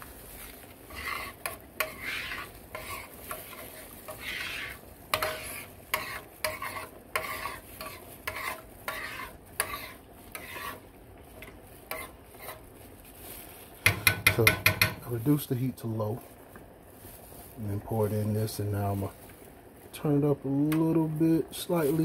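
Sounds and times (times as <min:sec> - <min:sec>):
light sizzle: 0:00.0 - 0:22.0
utensil scraping pan: 0:00.8 - 0:12.7, 0:13.8 - 0:15.1.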